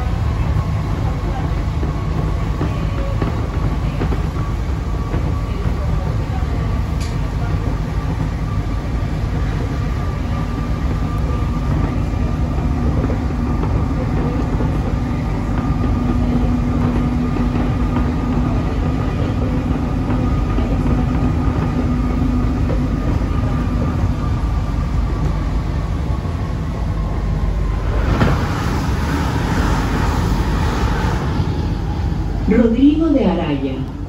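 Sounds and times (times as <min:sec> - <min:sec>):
metro car rumble: 0:00.0 - 0:34.0
steady hum: 0:10.4 - 0:34.0.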